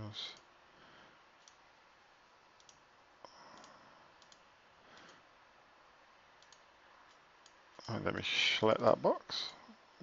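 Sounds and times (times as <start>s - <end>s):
computer mouse clicks: 1.4s - 1.6s, 2.5s - 5.2s, 6.4s - 7.7s.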